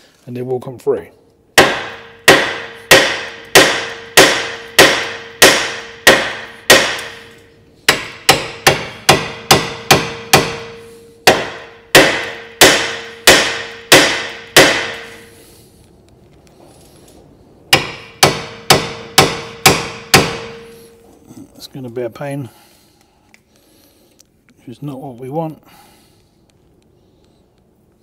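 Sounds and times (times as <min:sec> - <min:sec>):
hammer striking metal: 0:01.6 - 0:15.3, 0:17.7 - 0:21.0
steady metallic ring: 0:01.6 - 0:15.4, 0:17.7 - 0:21.2.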